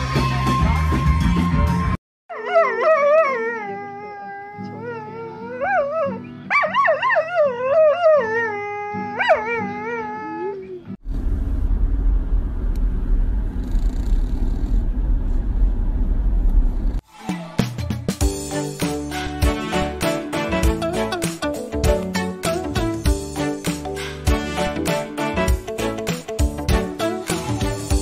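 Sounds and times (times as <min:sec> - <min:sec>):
dog howling: 0:02.3 - 0:11.0
steady low rumbling noise: 0:11.0 - 0:17.0.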